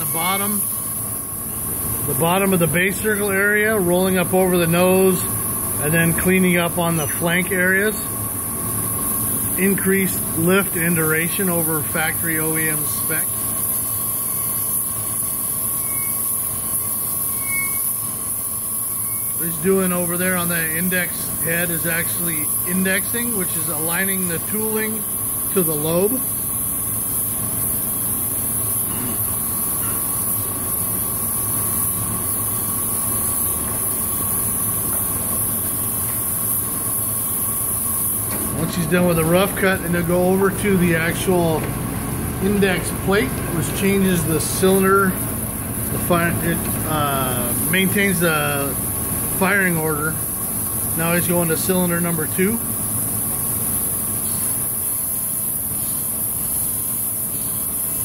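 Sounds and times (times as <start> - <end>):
coolant hiss: 0.0 - 58.0
grinding machine hum and whine: 0.0 - 58.0.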